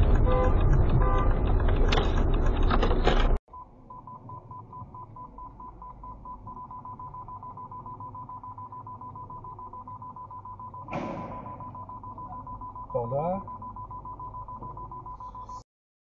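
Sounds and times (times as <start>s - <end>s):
car road and wind noise: 0.0s - 3.4s
parking sensor beeping: 3.5s - 15.6s.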